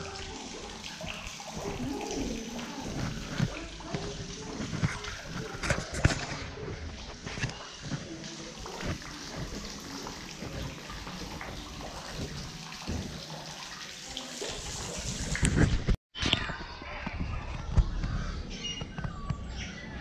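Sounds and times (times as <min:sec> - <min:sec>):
water trickling into pond: 0:00.0 - 0:06.0, 0:07.5 - 0:15.5.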